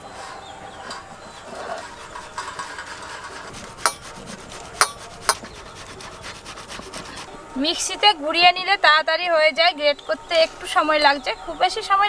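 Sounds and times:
fruit rasping on metal grater: 1.8s - 7.3s.

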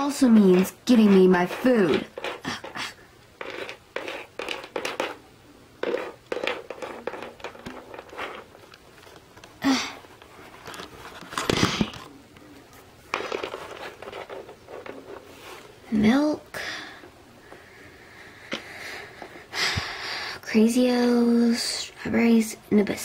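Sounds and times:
bump and rub: 0.0s - 5.2s, 5.8s - 8.6s
plastic toys clicking on wooden floor: 3.4s - 5.2s, 5.8s - 8.8s.

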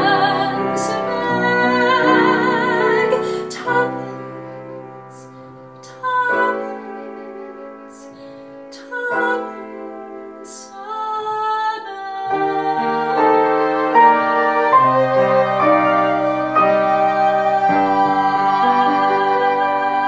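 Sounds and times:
piano: 0.0s - 20.0s
woman singing: 0.0s - 20.0s
flutes: 12.3s - 20.0s.

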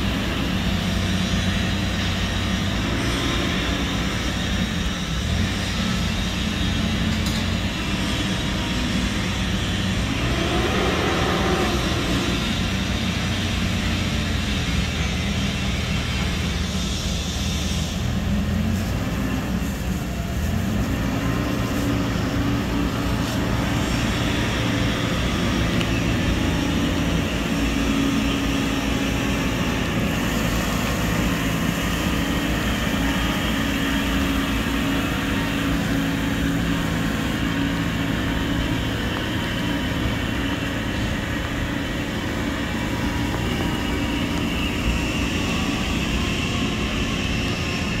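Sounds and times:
diesel truck engine running: 0.0s - 48.0s
water spraying hiss: 0.0s - 48.0s.

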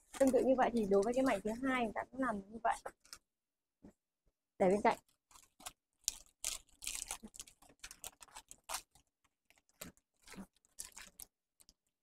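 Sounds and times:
wrapping paper crinkling: 5.0s - 12.0s.

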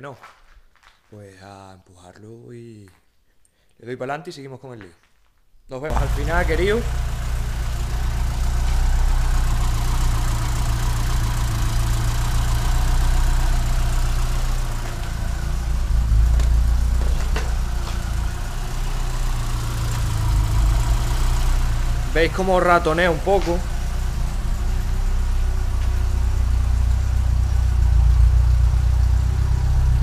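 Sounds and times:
car engine idling roughly: 5.9s - 29.5s.

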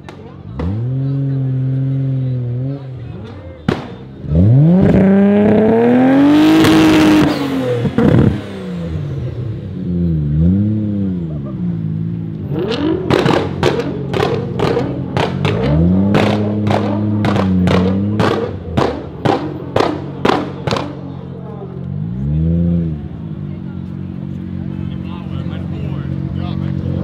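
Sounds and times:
exhaust bangs: 0.0s - 27.0s
car engine revving hard: 3.7s - 23.2s.

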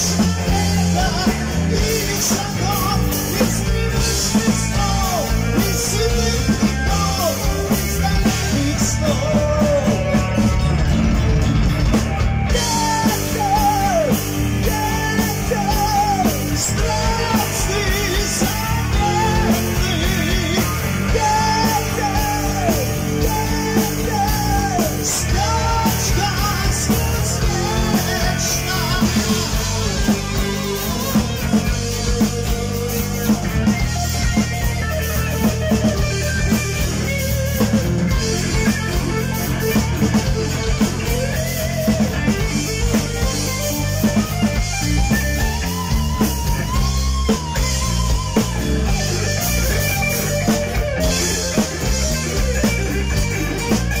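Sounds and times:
man singing: 0.0s - 10.7s, 12.5s - 33.8s
bass guitar: 0.0s - 54.0s
distorted electric guitar: 0.0s - 54.0s
drum kit: 0.0s - 54.0s.

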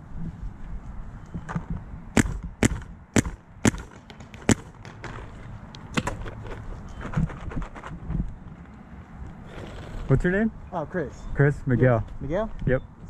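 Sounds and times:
paintball marker shots: 2.2s - 6.2s.

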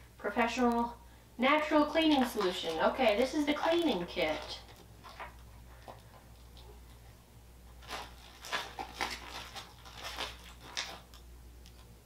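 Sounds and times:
plastic packaging crinkling: 1.6s - 7.0s, 7.7s - 11.9s.

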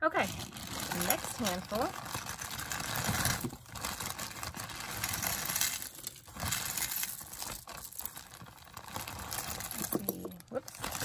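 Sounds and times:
bag crinkling and rustling: 0.1s - 11.0s
beads and metal clinking: 0.2s - 11.0s.

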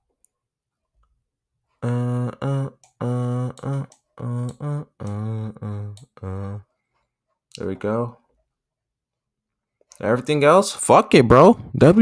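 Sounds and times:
man humming a tune: 1.8s - 6.7s.

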